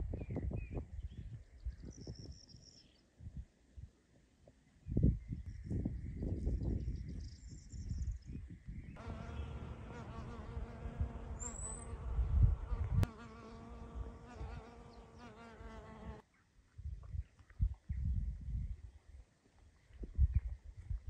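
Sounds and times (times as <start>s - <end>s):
bee buzzing in flight: 9.0s - 16.2s.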